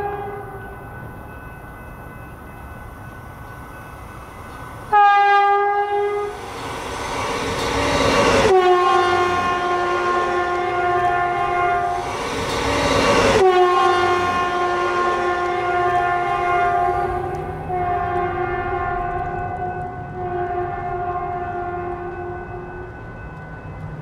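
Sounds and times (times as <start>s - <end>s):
train horn: 0.0s - 0.8s, 4.9s - 6.4s, 8.3s - 12.1s, 13.2s - 22.9s
train engine and wheels rumbling: 0.0s - 24.0s.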